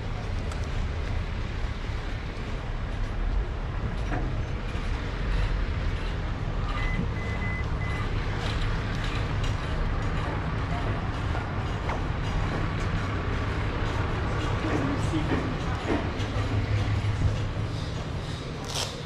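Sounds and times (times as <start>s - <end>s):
movement noise while walking: 0.1s - 19.0s
short high beeps: 6.7s - 8.0s.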